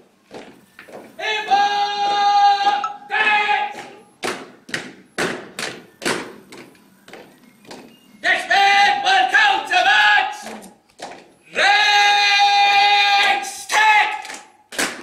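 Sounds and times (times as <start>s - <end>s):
boots marching on stone: 0.2s - 1.2s, 11.0s - 11.3s
drill command shouted: 1.2s - 3.9s, 8.2s - 10.6s, 11.5s - 14.2s.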